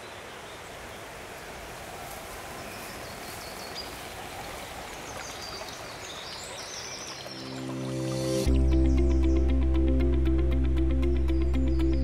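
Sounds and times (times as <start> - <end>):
stream running over stones: 0.0 - 8.4.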